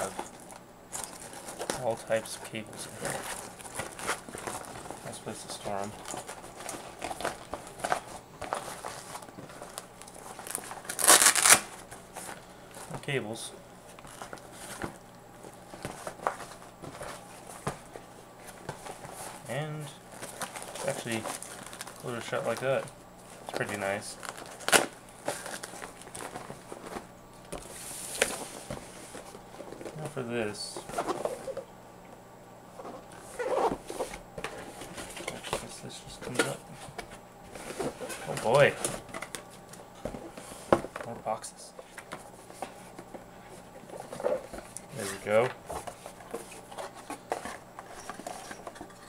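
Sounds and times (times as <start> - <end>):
rustling and scraping of pouch: 0.0 - 2.1, 2.7 - 12.9, 14.0 - 15.0, 32.8 - 35.6, 41.8 - 49.0.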